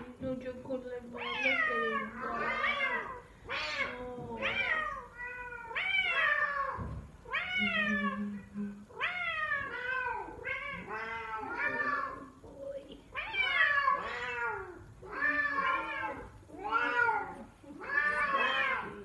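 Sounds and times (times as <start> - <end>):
cat meow-like calls: 9.0 - 12.3, 13.2 - 19.0.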